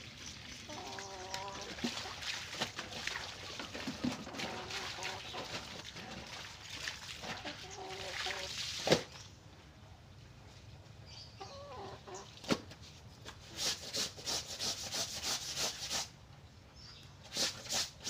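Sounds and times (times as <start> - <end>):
water splashing in a basin: 0.0 - 9.2.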